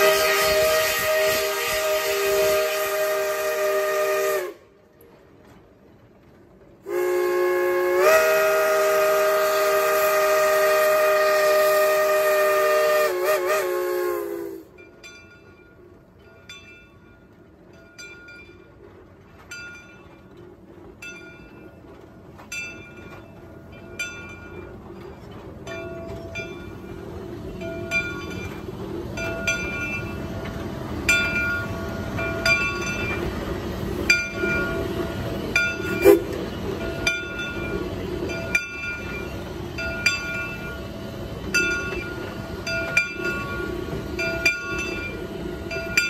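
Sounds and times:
steam locomotive whistle: 0.0 - 4.8, 6.8 - 14.8, 34.0 - 36.6
moving train clicking: 0.0 - 46.0.

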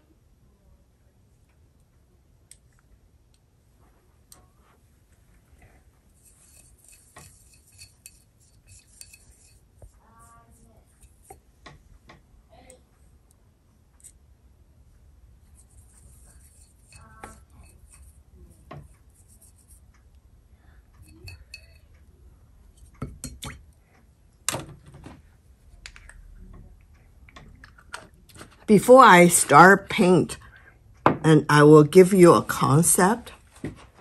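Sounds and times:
paint dishes and jars clinking: 6.2 - 9.7, 15.7 - 18.2, 21.0 - 21.9.

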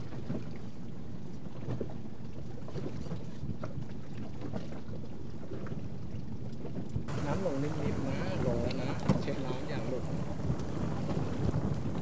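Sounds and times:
water splashing: 0.0 - 12.0
wind rumbling on microphone: 0.0 - 12.0.

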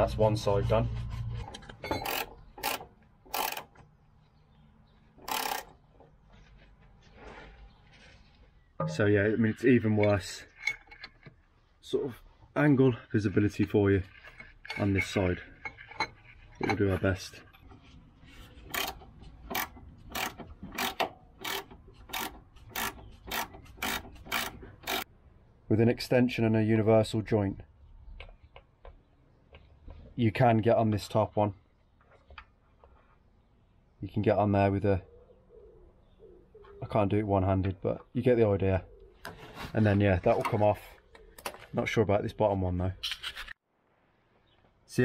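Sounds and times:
ratchet wrench strokes: 1.9 - 3.7, 5.2 - 5.7, 18.6 - 25.0.

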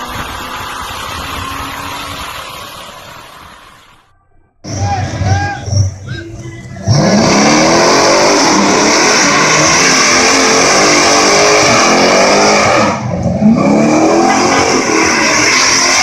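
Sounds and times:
car engine revving hard: 6.8 - 16.0.

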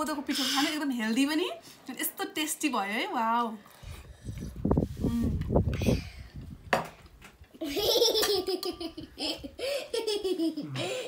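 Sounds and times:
girl giggling: 7.6 - 11.0.

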